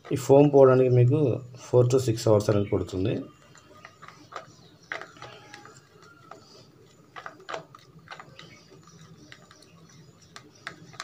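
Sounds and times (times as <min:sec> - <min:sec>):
plastic spoon stirring in cup: 0:02.9 - 0:11.0.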